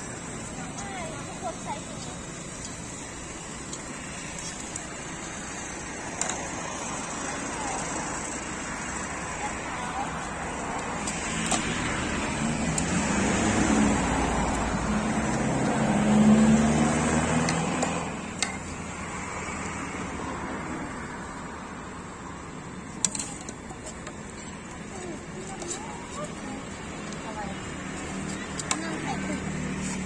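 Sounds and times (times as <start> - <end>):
vehicle passing by: 4.1 - 22.2.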